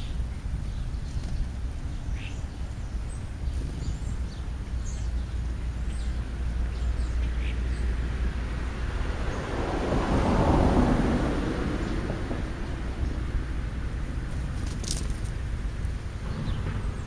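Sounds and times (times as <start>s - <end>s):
bird chirps: 0.0s - 7.9s
low outdoor rumble: 0.0s - 17.0s.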